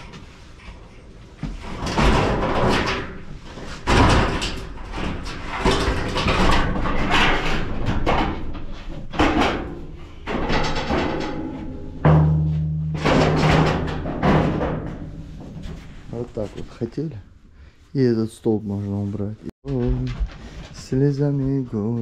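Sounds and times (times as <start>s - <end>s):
loud bangs and rattles: 1.4s - 16.4s.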